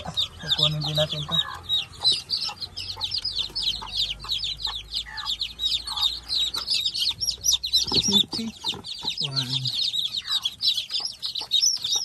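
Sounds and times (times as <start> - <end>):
chicks peeping: 0.0 - 12.0
hen clucking: 0.0 - 12.0.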